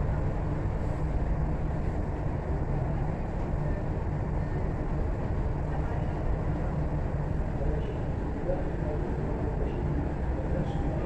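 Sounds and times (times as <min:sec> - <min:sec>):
train carriage rumble: 0:00.0 - 0:11.0.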